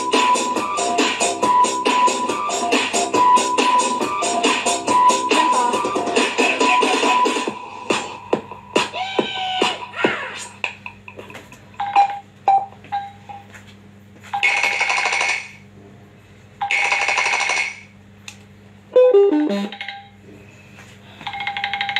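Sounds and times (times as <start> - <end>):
phone ringtone ringing: 19.0 - 20.2, 21.2 - 21.9.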